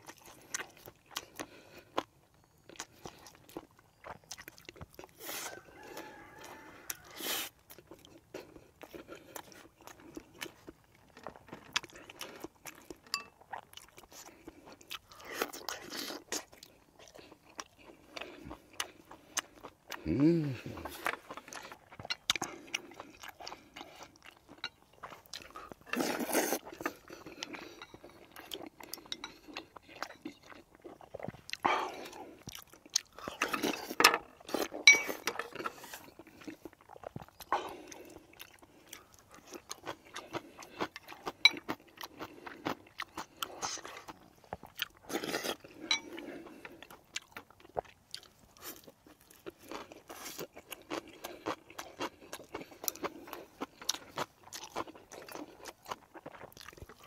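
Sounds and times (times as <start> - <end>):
person chewing food: 0.0 - 57.0
chopsticks and spoon clicking on bowls: 13.1 - 13.3, 34.8 - 35.6, 45.9 - 46.1.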